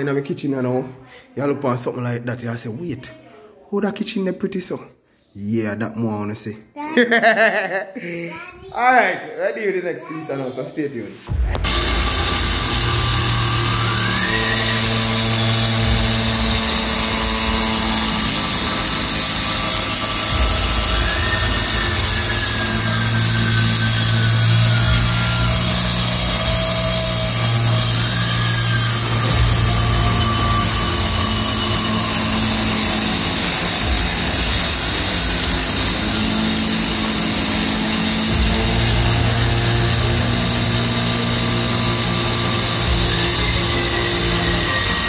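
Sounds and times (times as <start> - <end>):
angle grinder cutting tile: 11.6 - 45.0.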